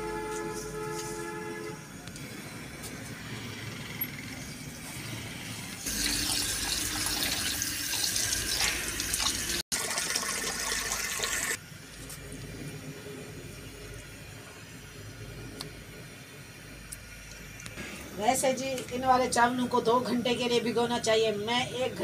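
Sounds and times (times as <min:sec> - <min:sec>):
tap water running into tray: 0:05.8 - 0:11.6.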